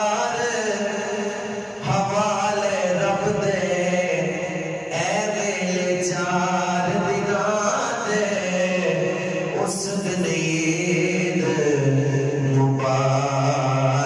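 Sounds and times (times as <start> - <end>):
man singing unaccompanied: 0.0 - 14.0.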